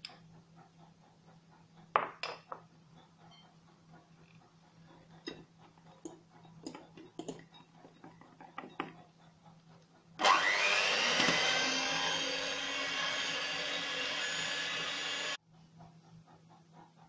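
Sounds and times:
electric hand mixer in batter: 10.2 - 15.4.

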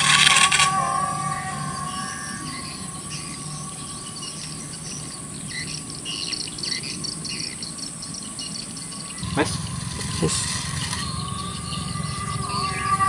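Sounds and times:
small electric motor whine: 0.0 - 5.7, 9.2 - 13.0
birds chirping: 0.0 - 13.0.

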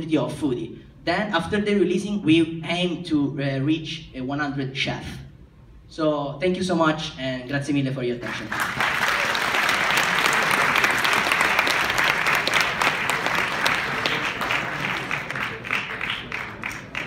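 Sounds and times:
audience applauding: 8.2 - 17.0.

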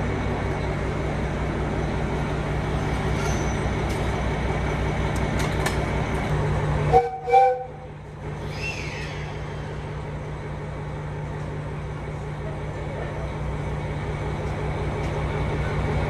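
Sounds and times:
diesel railcar engine idling: 0.0 - 16.0
train horn toots: 6.9 - 7.9.

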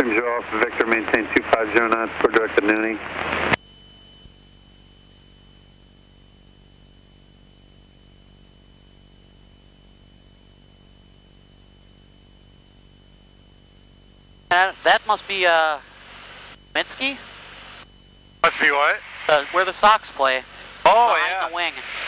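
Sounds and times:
intercom hiss and hum: 0.0 - 4.3, 14.5 - 22.0.

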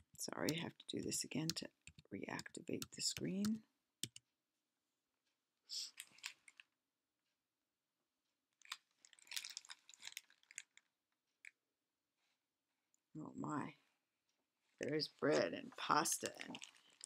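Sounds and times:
handling rustling and clicks: 6.0 - 6.7, 8.6 - 11.6, 15.2 - 17.0.

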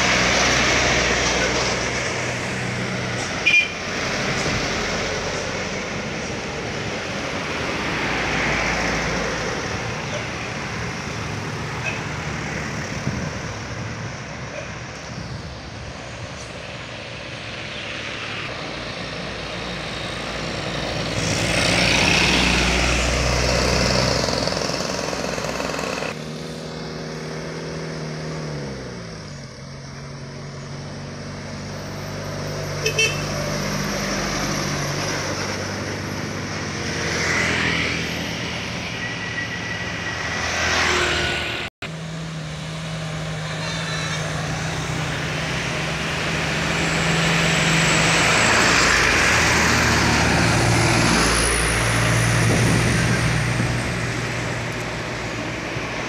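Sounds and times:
truck engines: 0.0 - 56.0
vehicle passing close: 18.2 - 29.3, 30.2 - 56.0.

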